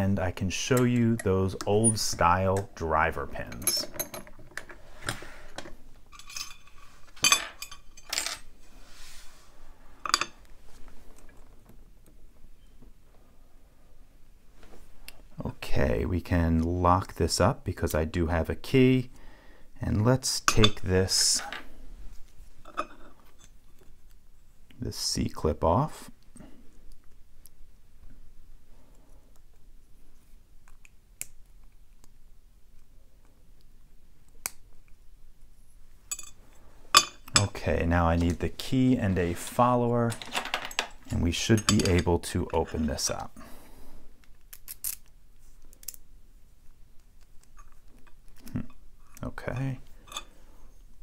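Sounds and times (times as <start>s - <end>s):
metal tools clinking: 0.7s - 2.3s, 3.3s - 4.7s, 6.1s - 8.5s, 10.0s - 10.4s, 36.1s - 37.6s, 39.6s - 43.2s, 49.4s - 50.4s
small metal clicks and scrapes: 44.2s - 46.0s.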